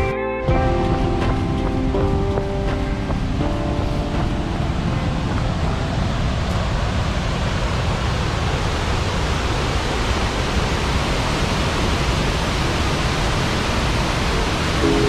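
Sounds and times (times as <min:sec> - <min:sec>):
waterfall rushing: 0:00.6 - 0:15.0.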